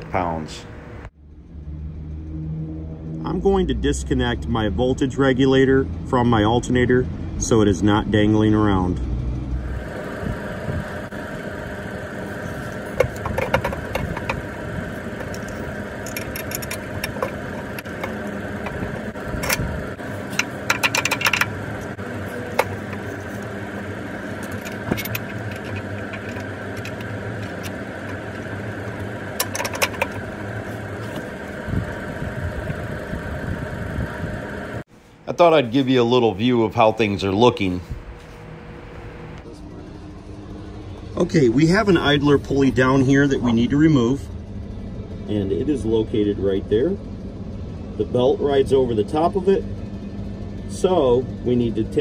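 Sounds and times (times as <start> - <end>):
steady mechanical hum: 0.0 - 2.4, 3.0 - 52.0
metallic clinks and rattles of tools: 15.2 - 18.8, 20.2 - 21.6, 24.2 - 28.4, 29.4 - 30.2.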